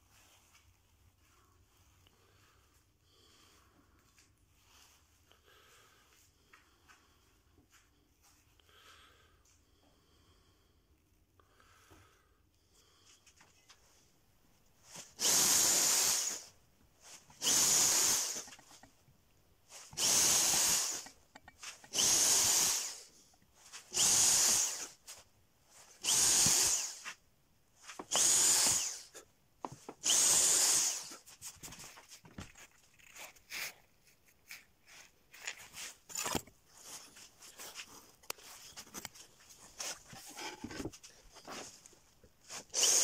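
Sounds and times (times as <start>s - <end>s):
electric drill drilling into wood: 15.0s - 16.5s, 17.1s - 18.9s, 19.8s - 23.2s, 23.8s - 25.0s, 25.9s - 27.1s, 27.9s - 29.2s, 29.9s - 31.2s, 42.6s - 43.0s.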